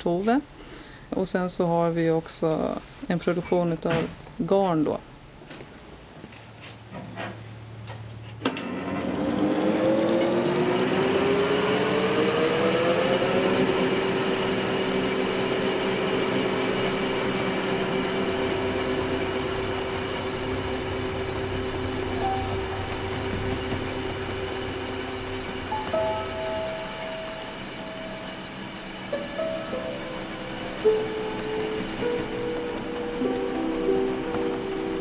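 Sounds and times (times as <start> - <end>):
spinning machine motor whirring: 8.9 - 35.0.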